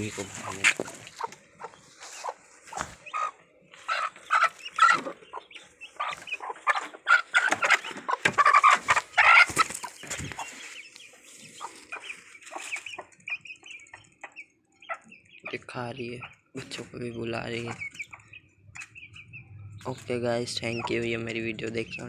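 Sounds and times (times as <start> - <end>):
hen clucking: 0.0 - 22.0.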